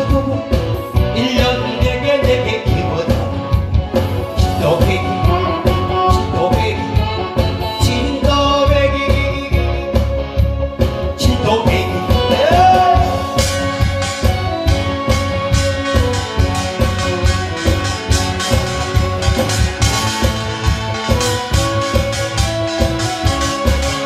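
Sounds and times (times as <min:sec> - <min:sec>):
man singing into microphone: 0:00.0 - 0:03.6, 0:04.3 - 0:10.1, 0:11.1 - 0:14.3
backing track with steady beat: 0:00.0 - 0:24.0.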